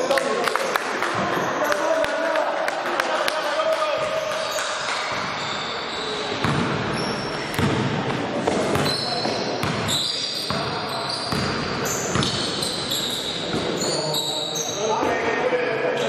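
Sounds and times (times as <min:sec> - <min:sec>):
basketball bouncing on court: 0:04.0 - 0:05.6, 0:06.3 - 0:13.8
sneaker squeaks: 0:04.0 - 0:15.2.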